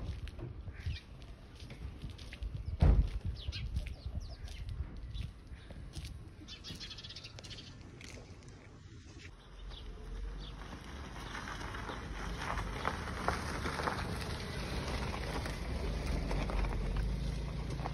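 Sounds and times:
small birds chirping: 0.6s - 13.0s
car driving on dirt road: 7.8s - 17.9s.

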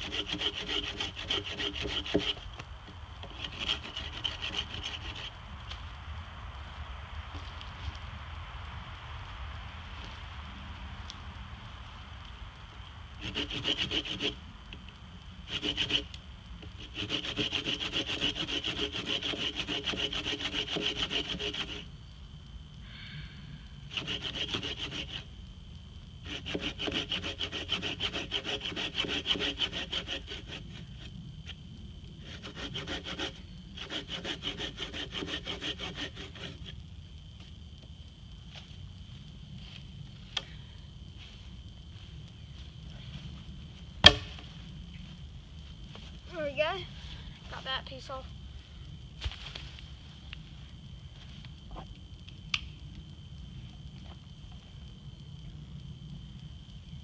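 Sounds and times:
hand saw cutting log: 0.0s - 2.6s, 3.2s - 5.3s, 13.2s - 14.4s, 15.5s - 21.9s, 23.9s - 25.2s, 26.2s - 31.1s, 32.2s - 36.8s.

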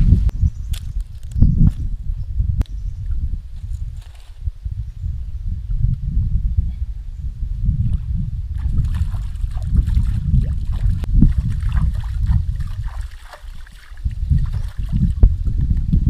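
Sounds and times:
low rumble: 1.9s - 13.0s
hands splashing in water: 8.6s - 15.2s
water trickling: 8.6s - 15.2s.

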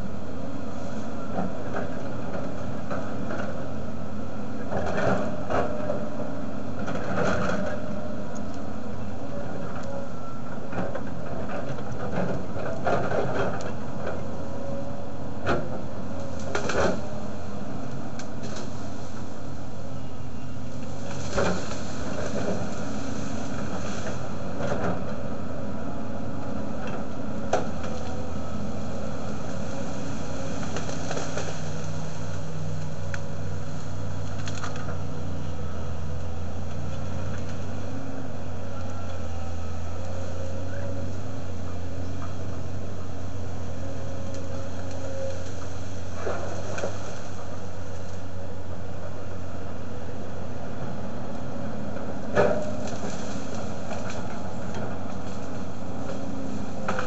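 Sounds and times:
diesel engine running: 0.0s - 57.0s
wood snapping: 29.6s - 33.3s, 34.2s - 35.0s.

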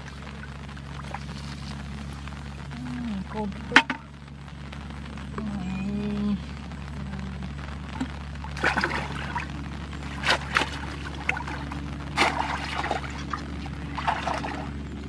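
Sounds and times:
low hum: 0.0s - 15.0s
hands splashing in pond water: 8.5s - 14.7s.

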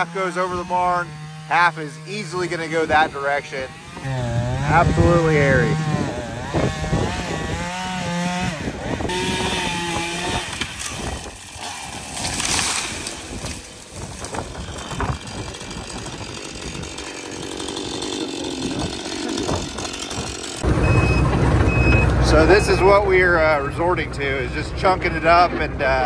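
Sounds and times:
branches crackling and snapping: 0.0s - 20.7s
chainsaw running: 0.0s - 26.0s
tree crashing down: 3.9s - 20.8s.

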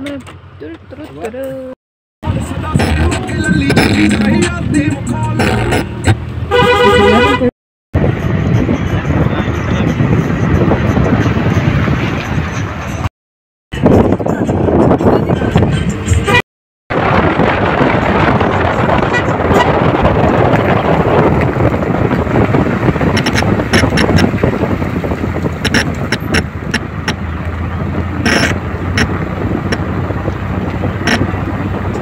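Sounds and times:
car road and wind noise: 0.0s - 13.1s, 13.7s - 32.0s
sharp clicks or knocks: 23.2s - 24.4s, 25.4s - 27.2s.

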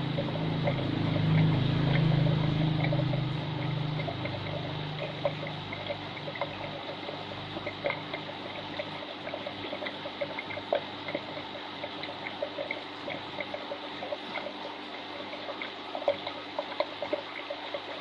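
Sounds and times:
low hum: 0.0s - 11.3s
aquarium water trickling and splashing: 0.0s - 18.0s.

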